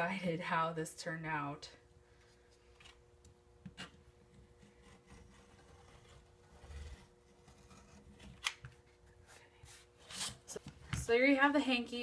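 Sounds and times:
rotary cutter scraping through fabric: 4.6 - 8.3.

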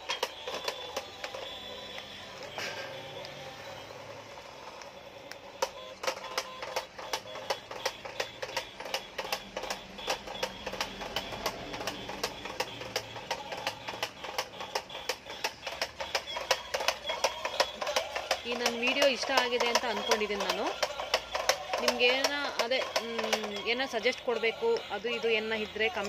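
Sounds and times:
toy car motors whirring: 0.0 - 26.0
wheels knocking on tiled floor: 5.6 - 24.3.

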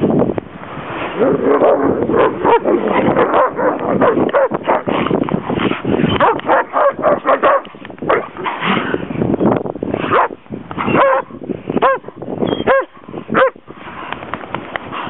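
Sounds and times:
dogs barking and yipping: 1.1 - 8.9, 10.1 - 13.6.

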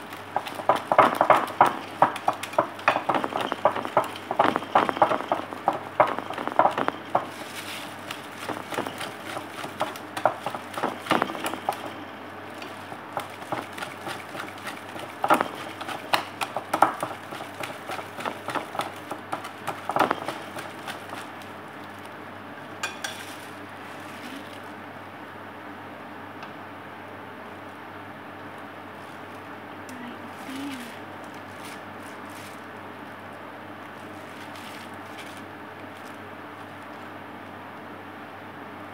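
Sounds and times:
whisk striking bowl: 0.1 - 12.0, 12.8 - 21.4, 22.8 - 23.2.

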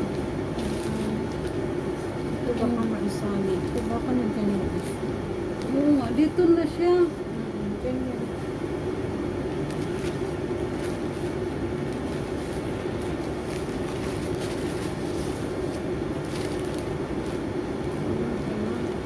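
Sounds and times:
steady low droning hum: 0.0 - 19.0
stiff paper sheets rustling: 9.6 - 17.5.

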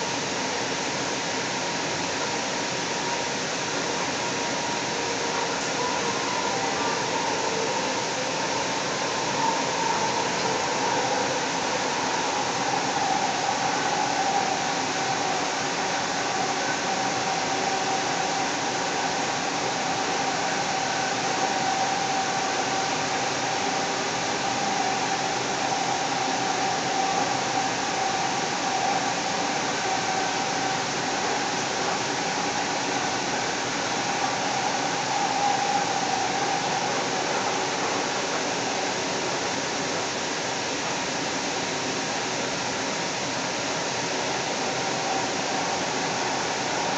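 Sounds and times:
train motor whine: 2.9 - 40.1
train wheels rushing: 4.6 - 41.1.

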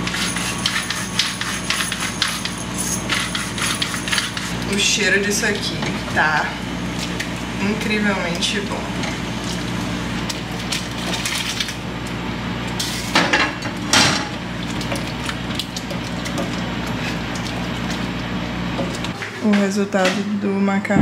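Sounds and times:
utensil scraping a pan: 0.0 - 4.6.

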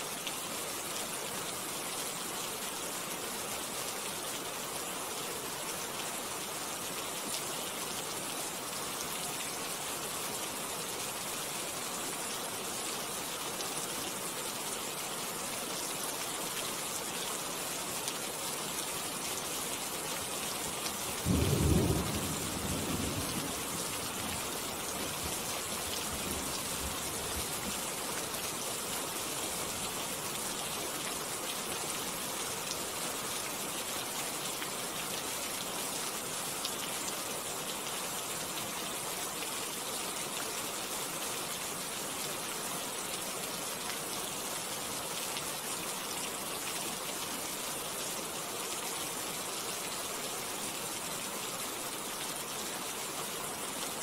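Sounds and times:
rain falling on leaves: 0.0 - 54.0
low rumble of thunder: 21.3 - 23.9.

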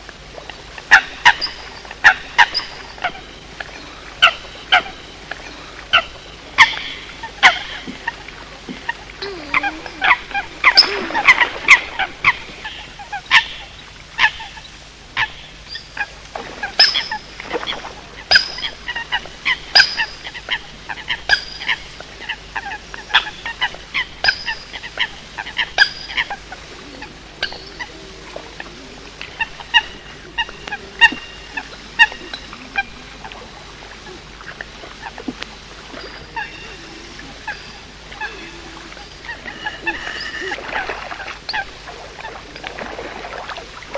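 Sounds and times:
coots honking calls: 16.4 - 42.4.

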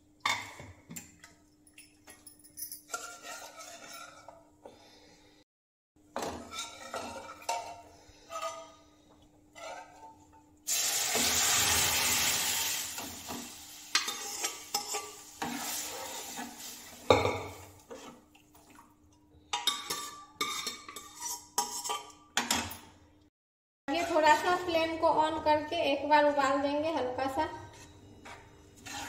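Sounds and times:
stirring clinks: 1.3 - 4.3
metal ladle scraping a pot: 2.9 - 4.9, 6.2 - 10.3, 14.0 - 16.8, 19.6 - 22.2, 27.7 - 29.0
loud sizzle: 10.7 - 17.1.

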